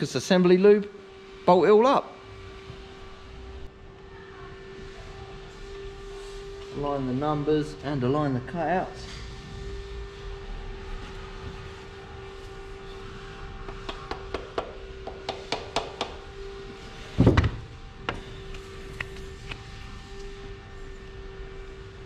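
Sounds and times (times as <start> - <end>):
steady hum: 0.0 - 22.0.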